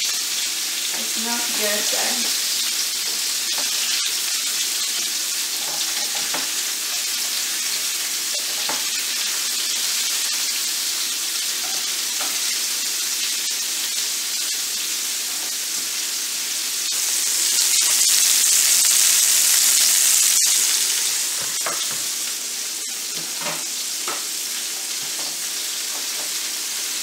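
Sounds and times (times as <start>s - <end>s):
patties sizzling in a pan: 0.0s - 27.0s.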